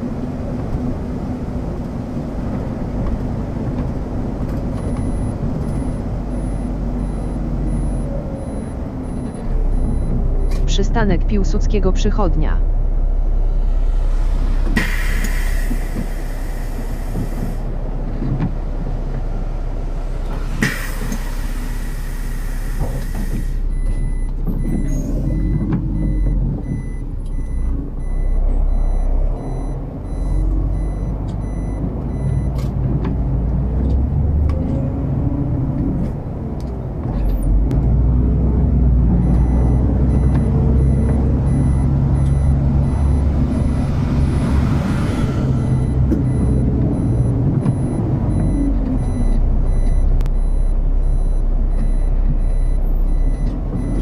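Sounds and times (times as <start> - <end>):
bus engine revving: 0.0 - 54.0
compressed air hissing: 14.8 - 17.6
door-warning beeper pulsing: 39.3 - 44.4, 45.0 - 54.0.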